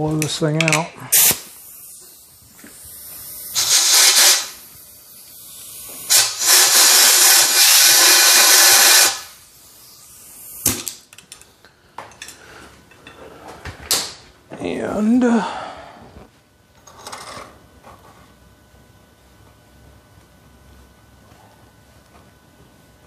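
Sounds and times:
compressed air blow gun hissing: 1.1s - 10.7s.

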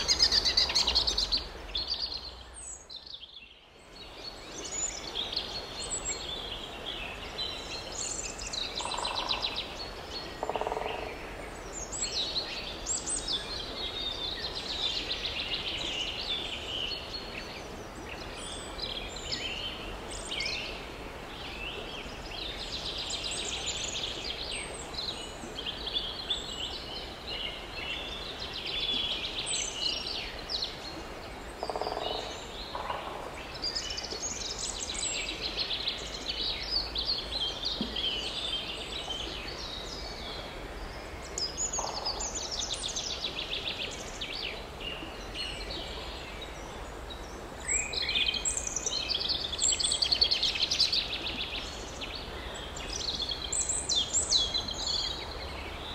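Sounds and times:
small birds chirping and trilling: 0.0s - 11.1s.

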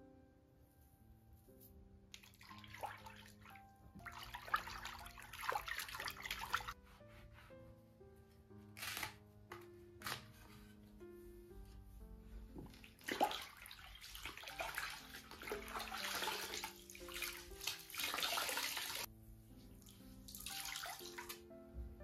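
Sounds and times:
soft background music: 0.0s - 22.0s
water sloshing in a plastic bucket: 12.7s - 18.9s.

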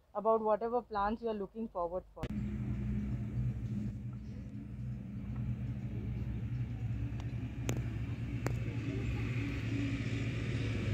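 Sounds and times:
low rumble with hum: 2.2s - 10.9s.

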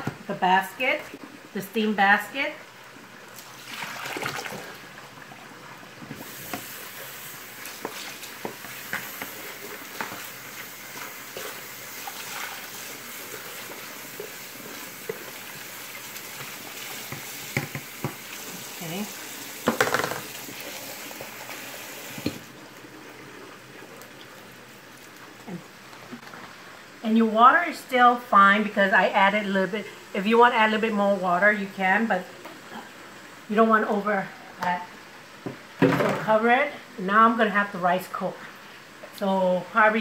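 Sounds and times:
faucet water running into bowl: 3.3s - 4.9s, 6.2s - 25.3s
bowl knocking and scraping: 19.7s - 20.3s.

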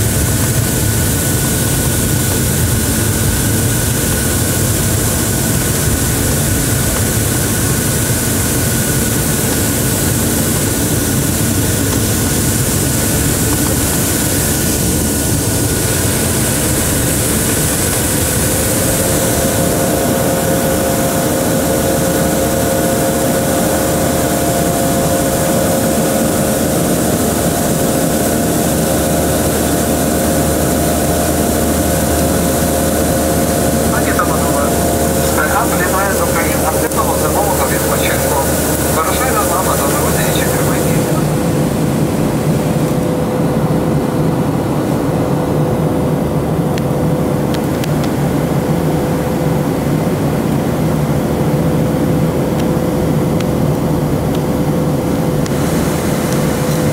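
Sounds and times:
jet cabin drone: 0.0s - 56.9s
steady humming tones: 0.0s - 56.9s.

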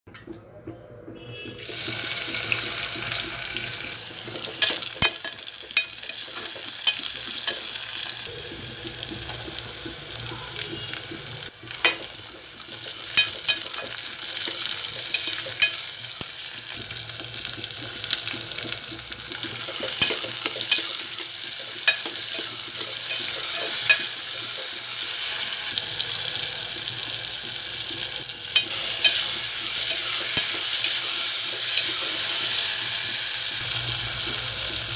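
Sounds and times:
vegetables sizzling in oil: 1.5s - 34.9s
spoon scraping a pot: 17.1s - 25.8s, 27.4s - 33.4s.

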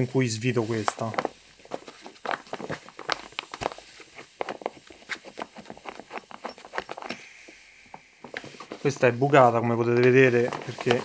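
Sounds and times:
hands clicking and rustling: 0.7s - 7.2s, 9.9s - 11.0s.

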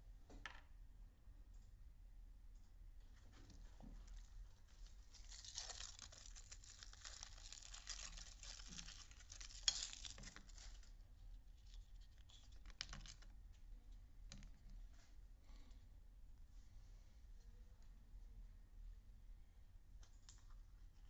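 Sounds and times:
foil wrapper crinkling and tearing: 4.1s - 10.9s, 11.6s - 13.3s.

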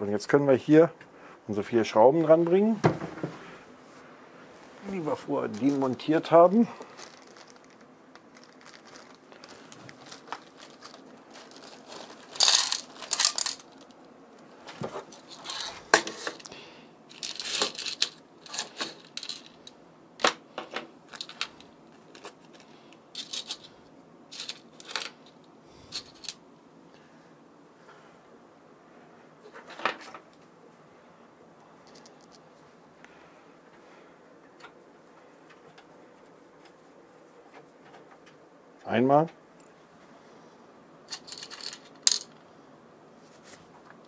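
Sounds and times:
rustling scrapes: 6.8s - 13.9s, 14.6s - 16.5s, 43.2s - 43.9s
metallic clicks and clinks: 12.4s - 13.7s.

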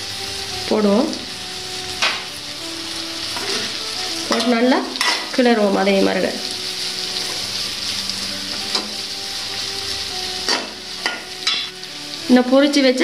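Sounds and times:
vegetables sizzling in butter: 0.0s - 13.0s
metal spoon scraping a wok: 3.4s - 5.4s.

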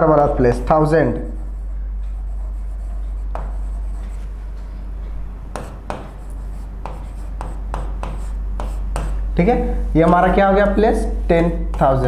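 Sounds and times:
steady low hum: 0.0s - 12.0s
marker strokes on whiteboard: 1.2s - 4.4s, 5.6s - 9.2s.

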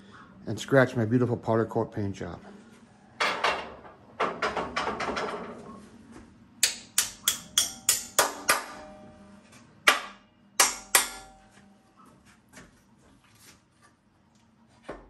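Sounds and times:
hammer striking metal bolts: 6.6s - 9.1s, 9.8s - 11.5s.

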